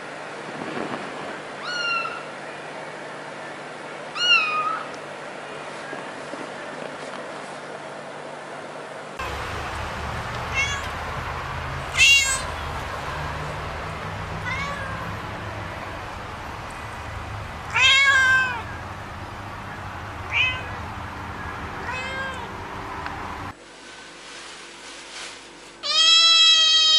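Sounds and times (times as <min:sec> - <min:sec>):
cat meowing: 0:01.6 - 0:02.3, 0:04.2 - 0:04.9, 0:10.5 - 0:11.0, 0:12.0 - 0:12.6, 0:14.4 - 0:15.1, 0:17.7 - 0:18.7, 0:20.3 - 0:20.8, 0:21.8 - 0:22.5, 0:25.8 - 0:26.9
steady low hum: 0:04.8 - 0:25.7.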